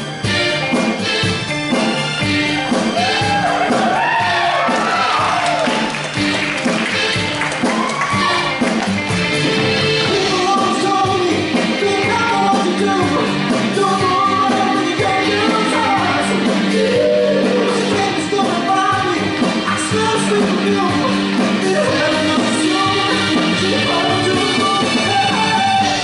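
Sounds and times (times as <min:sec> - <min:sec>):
live band playing: 0:00.0 - 0:26.0
vocal group singing harmonies: 0:10.0 - 0:26.0.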